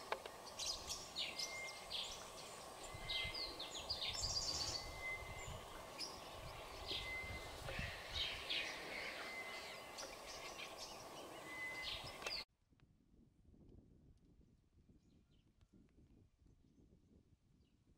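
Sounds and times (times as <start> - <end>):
background hiss: 0.0 - 12.4
birds chirping: 0.0 - 12.5.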